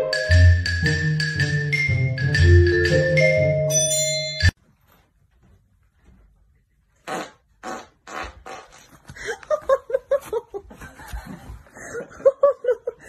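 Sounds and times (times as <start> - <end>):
xylophone-like mallet music: 0.0 - 4.6
short fart sounds: 7.0 - 9.0.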